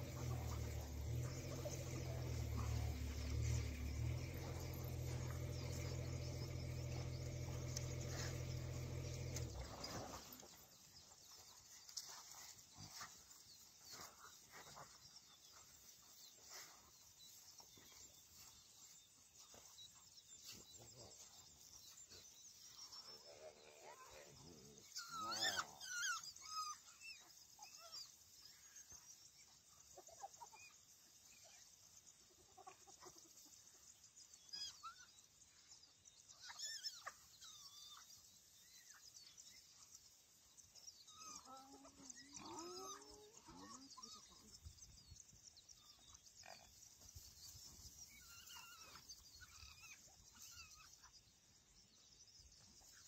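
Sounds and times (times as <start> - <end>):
hyenas squealing and grunting: 0.0 - 10.5, 22.7 - 29.0, 34.4 - 35.2, 36.3 - 39.3, 40.8 - 44.6, 48.0 - 51.2.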